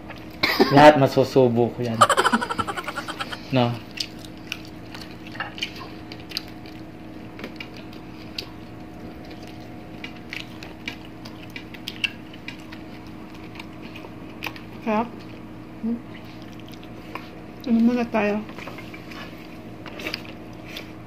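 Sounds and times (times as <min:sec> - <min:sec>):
chewing smacks: 0:03.9 - 0:06.9, 0:09.2 - 0:14.7, 0:16.2 - 0:17.3.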